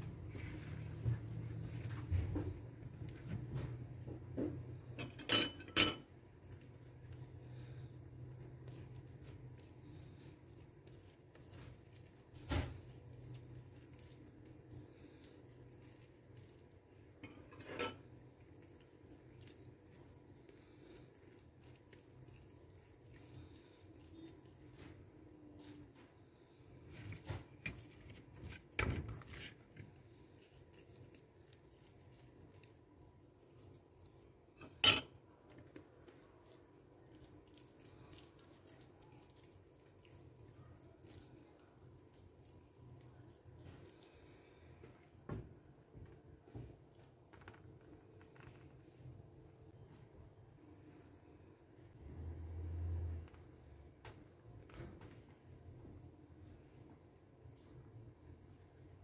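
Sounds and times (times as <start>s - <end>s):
metal pot and spoon clinking: 5.0s - 6.1s, 17.2s - 18.1s, 34.6s - 35.2s
faint handling noise: 43.4s - 51.0s.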